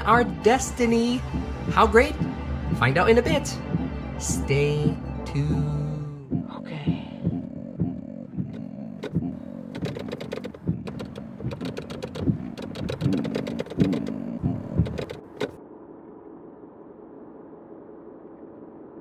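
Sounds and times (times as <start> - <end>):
low steady hum: 0.0 - 19.0
car radio changing stations: 4.3 - 15.6
rapid radio clicks: 6.3 - 15.6.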